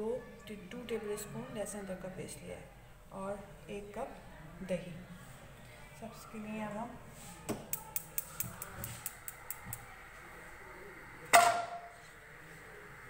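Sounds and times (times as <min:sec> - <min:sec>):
gas stove igniter ticking: 0:07.7 - 0:09.9.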